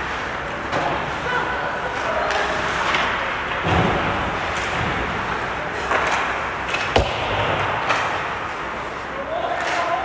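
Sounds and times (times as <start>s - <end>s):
hockey stick clack: 5.8s - 8.4s.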